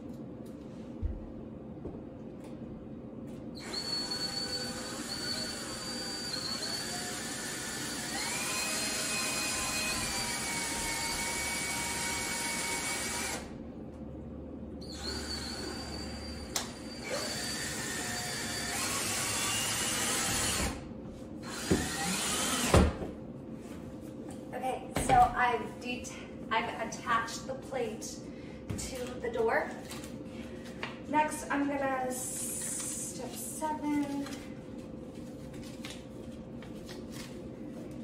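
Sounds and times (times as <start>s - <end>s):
power screwdriver whining: 3.6s - 13.5s.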